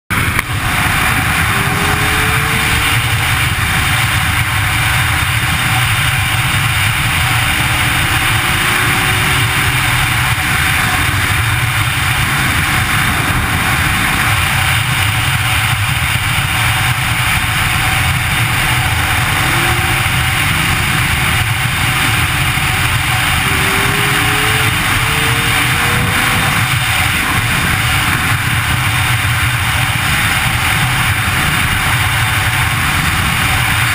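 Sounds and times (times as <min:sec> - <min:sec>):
motorcycle engine running: 0:00.1 - 0:33.9
wind rushing over microphone: 0:00.1 - 0:33.9
faint short rising tones: 0:22.7 - 0:26.8.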